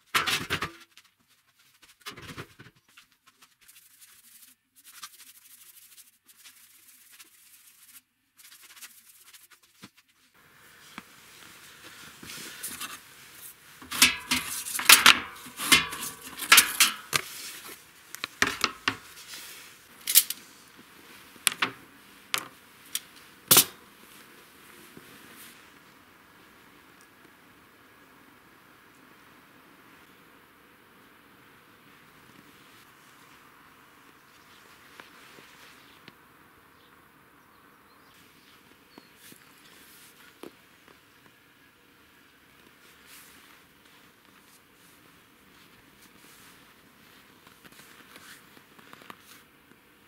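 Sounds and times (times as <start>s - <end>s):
cutlery clinking in steel holder: 13.8s - 17.1s.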